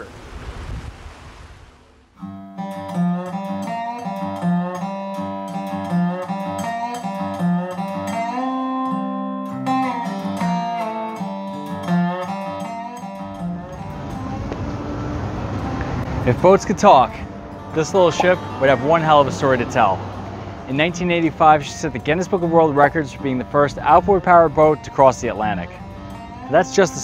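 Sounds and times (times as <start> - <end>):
faint wind and water: 0.0 - 2.2, 13.8 - 27.0
plucked guitar music: 2.2 - 27.0.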